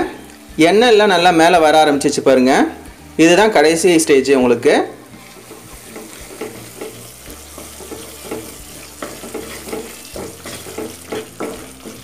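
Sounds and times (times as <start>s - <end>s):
paste sizzling in oil: 2.8s - 12.0s
wooden spatula scraping pan: 5.3s - 12.0s.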